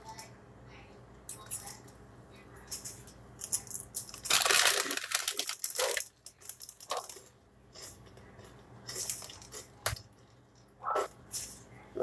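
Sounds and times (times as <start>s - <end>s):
plastic packaging crinkling: 4.1s - 7.2s.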